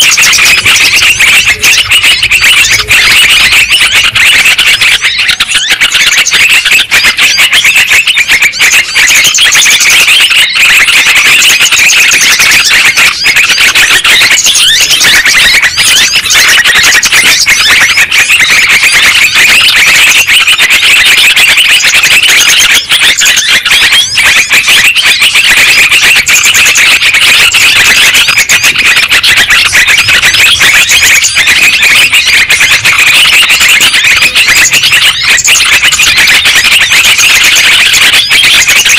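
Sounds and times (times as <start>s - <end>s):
bulbuls chattering and scolding: 0.0s - 38.9s.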